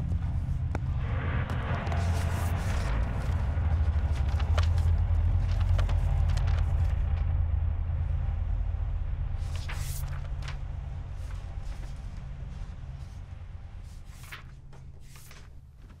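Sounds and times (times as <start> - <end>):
deep low drone: 0.0 - 16.0
book pages turning: 1.5 - 7.2, 9.4 - 13.2, 13.8 - 16.0.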